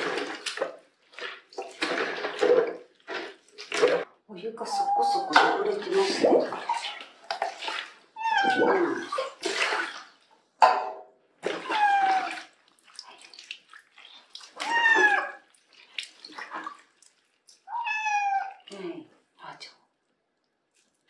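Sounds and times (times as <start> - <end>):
water splashing in a basin: 0.0 - 10.4, 11.2 - 19.4
cat meowing: 8.2 - 9.0, 11.5 - 12.5, 14.5 - 15.4, 17.6 - 18.7.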